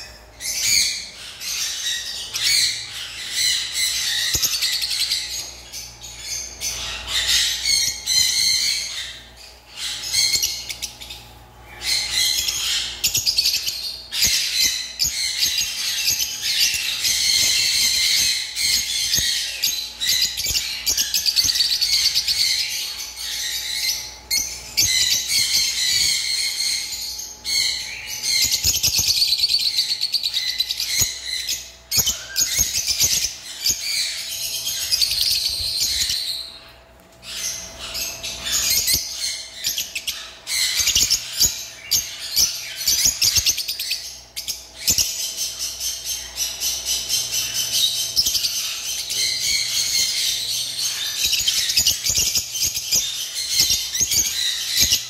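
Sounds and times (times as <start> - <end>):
lovebirds chirping: 0.0 - 55.0.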